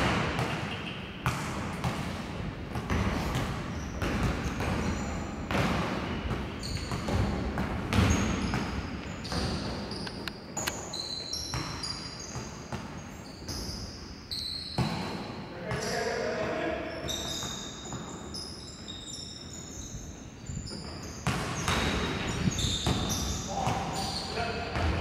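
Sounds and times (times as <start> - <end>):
basketball bouncing: 0.0 - 9.8, 20.8 - 24.0, 24.7 - 25.0
sneakers squeaking: 0.0 - 25.0.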